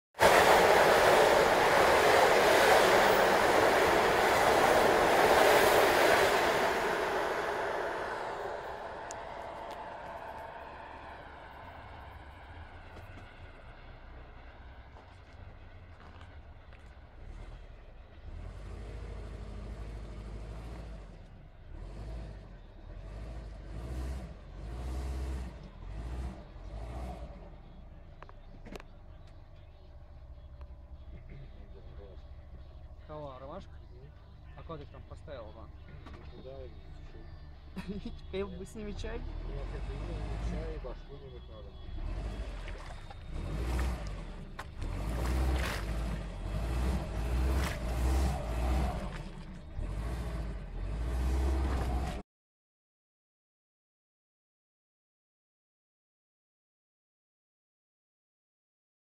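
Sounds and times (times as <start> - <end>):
off-road vehicle engine rumble: 0.0 - 52.2
train wheels rumbling on rails: 0.2 - 16.9.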